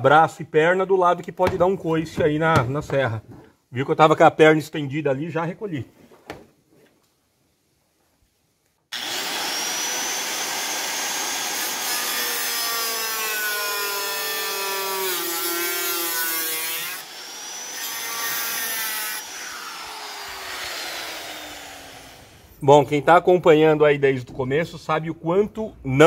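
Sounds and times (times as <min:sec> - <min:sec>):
saw cutting through sheet metal: 0:08.9 - 0:22.6.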